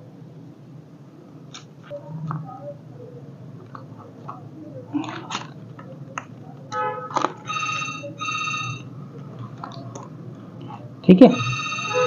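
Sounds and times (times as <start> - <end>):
electronic phone ringtone: 7.4 - 8.9, 11.3 - 12.0.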